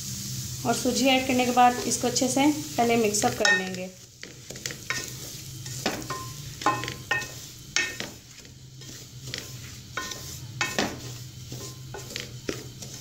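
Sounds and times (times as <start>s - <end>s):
faint sizzle: 0.0s - 13.0s
wooden spoon stirring in pot: 0.9s - 13.0s
spoon knocking metal pot: 3.3s - 3.8s, 5.8s - 8.2s, 10.0s - 11.1s.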